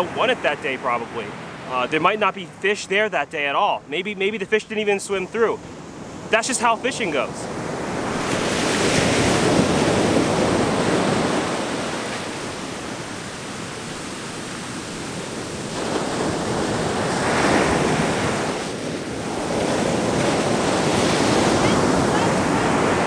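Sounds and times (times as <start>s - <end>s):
ocean surf breaking: 0.0s - 23.0s.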